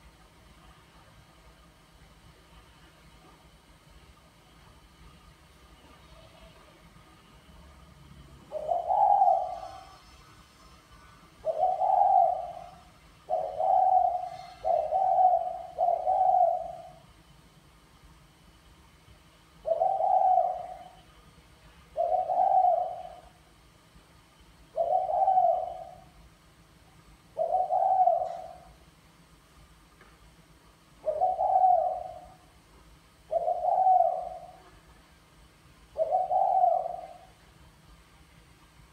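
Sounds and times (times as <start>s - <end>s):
dove cooing: 8.5s - 10.0s, 11.4s - 17.0s, 19.6s - 21.0s, 21.9s - 23.4s, 24.7s - 26.2s, 27.3s - 28.8s, 31.0s - 32.4s, 33.3s - 34.8s, 36.0s - 37.4s.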